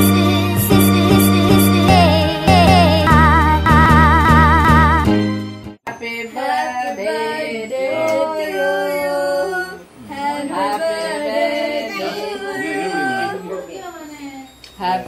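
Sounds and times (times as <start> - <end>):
group of voices singing: 5.9 - 13.6.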